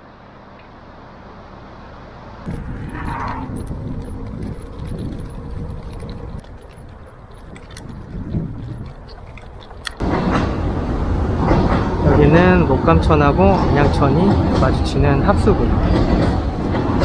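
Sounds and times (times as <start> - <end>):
light rattling clicks: 2.5 - 10.0
wind rumbling on microphone: 2.5 - 17.0.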